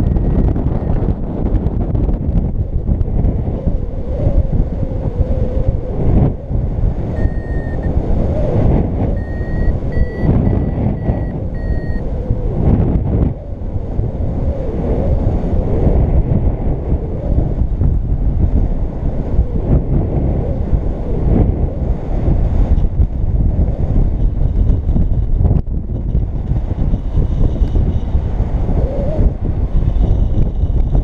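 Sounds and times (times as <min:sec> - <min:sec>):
variometer beeps: 0:00.0 - 0:01.0, 0:07.1 - 0:08.0, 0:09.1 - 0:12.1
wind over microphone: 0:00.0 - 0:31.0.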